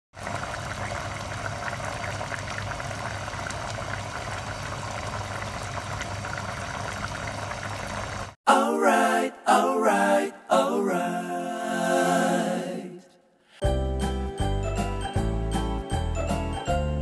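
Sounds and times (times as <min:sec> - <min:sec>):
cream sauce bubbling in a pan: 0:00.2 - 0:08.4.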